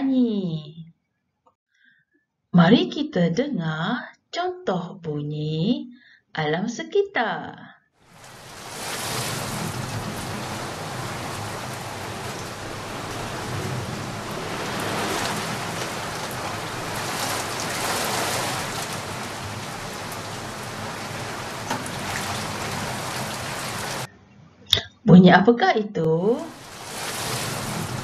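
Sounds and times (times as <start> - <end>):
heavy rain pouring: 8.0 - 24.1, 26.3 - 28.0
raindrop impacts: 8.0 - 24.1, 26.4 - 28.0.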